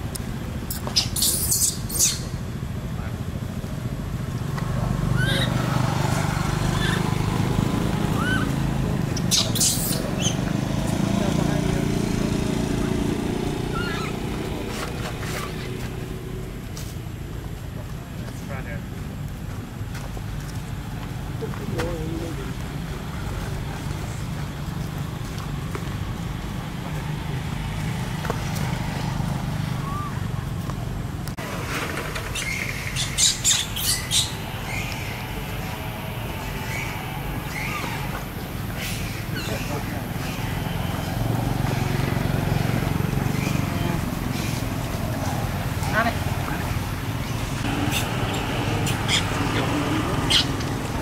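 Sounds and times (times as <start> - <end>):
baby monkey squealing: 0.7 - 2.4, 5.1 - 5.8, 6.6 - 7.2, 8.1 - 8.6, 9.2 - 10.4, 13.6 - 14.3, 32.3 - 35.1, 36.6 - 38.1, 47.8 - 50.7
high chirps: 0.7 - 2.4, 9.2 - 10.4
faint high squeaks: 13.7 - 14.2.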